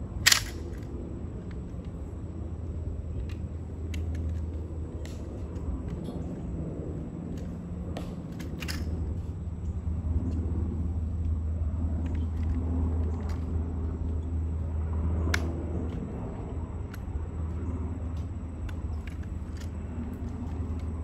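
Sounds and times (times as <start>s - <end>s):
rifle clicks and taps: 0.3s - 2.0s, 3.2s - 6.2s, 7.3s - 8.9s, 16.9s - 17.1s.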